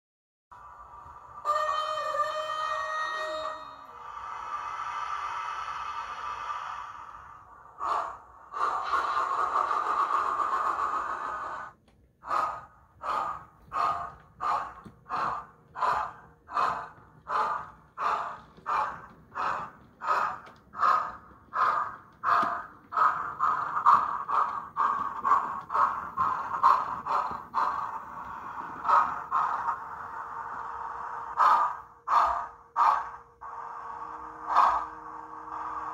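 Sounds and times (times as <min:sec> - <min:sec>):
steam locomotive exhaust beats: 0:00.5 - 0:35.9
steam hiss from small speaker: 0:03.9 - 0:08.0.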